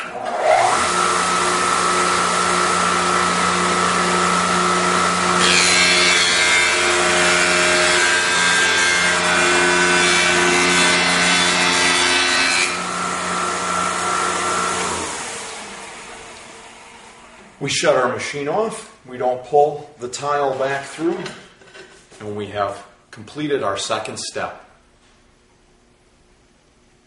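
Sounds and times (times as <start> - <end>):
grinding wheel on tile edge: 0.2 - 15.2
electric motor running: 0.3 - 6.1, 11.4 - 17.2.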